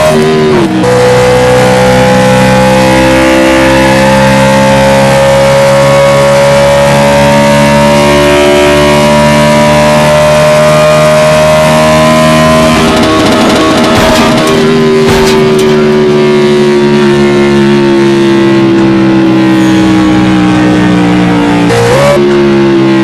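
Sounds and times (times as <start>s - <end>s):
race car engines droning: 0.0s - 23.0s
sharp knock: 12.7s - 16.0s.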